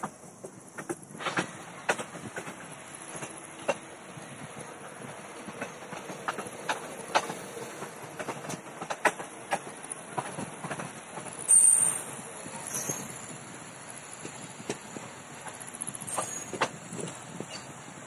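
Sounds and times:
train coach rumbling: 0.0s - 18.0s
wheels clicking over rail joints: 0.0s - 18.0s
high-pitched squeal: 11.5s - 13.2s.

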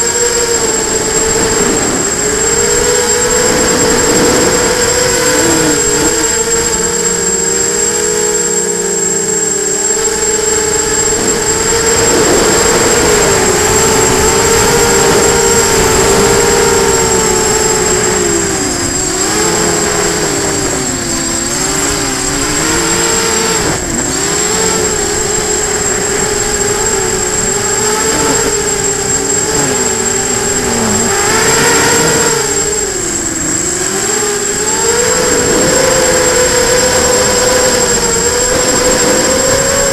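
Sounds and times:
drone propellers whining: 0.0s - 39.9s
steady high-pitched tone: 0.0s - 39.9s.

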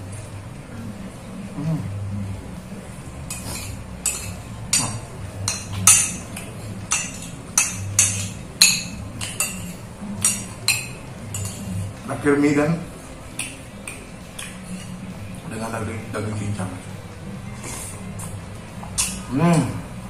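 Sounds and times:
metal spoon clinking on glass bowl: 3.3s - 11.8s.

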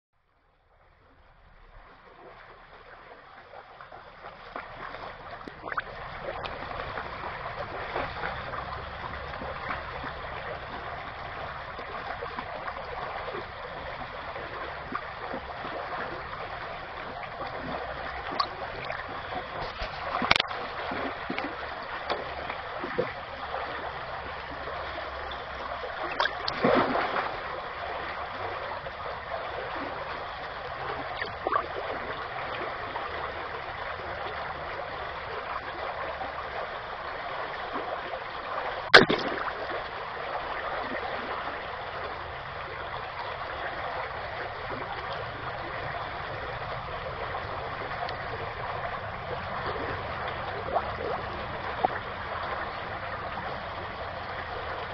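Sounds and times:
creek water running over stones: 2.0s - 54.9s
splashing at water surface: 38.9s - 39.7s.

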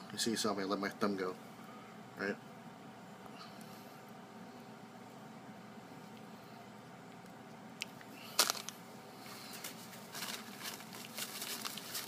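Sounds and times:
paper towel rustling: 9.3s - 12.0s.

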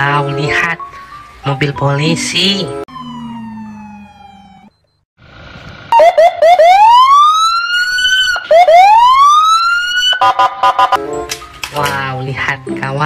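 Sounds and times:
police car siren: 2.8s - 11.0s.

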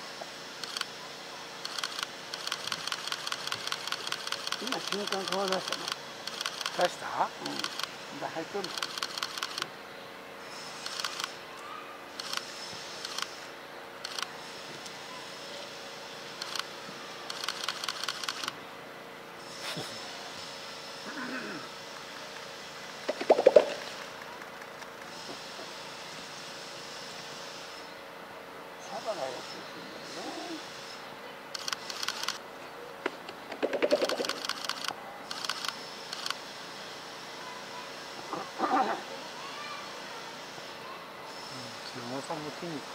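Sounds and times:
faint background hum: 0.0s - 42.9s
camera shutter clicks: 0.6s - 0.9s, 1.6s - 7.9s, 8.6s - 9.7s, 10.8s - 11.4s, 12.2s - 13.4s, 14.0s - 14.3s, 16.4s - 16.7s, 17.3s - 18.6s, 31.6s - 32.4s, 33.7s - 36.4s.

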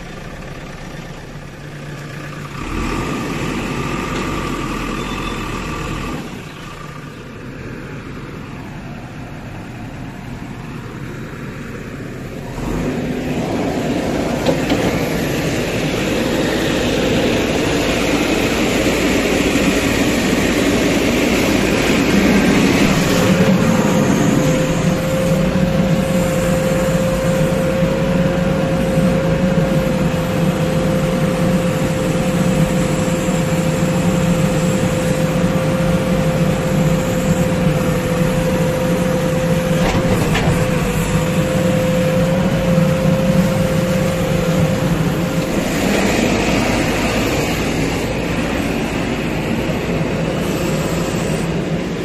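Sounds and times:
diesel engine running under load: 0.0s - 52.0s
steady high whine: 0.0s - 52.0s
bucket working in steel tipper: 13.0s - 52.0s.

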